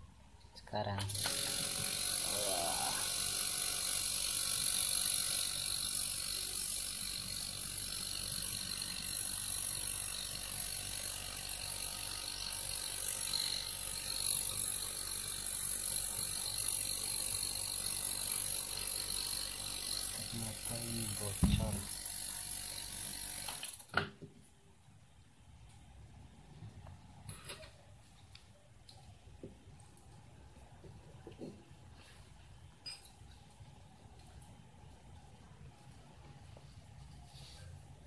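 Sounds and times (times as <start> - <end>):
refrigerator compressor running: 1.1 - 23.8.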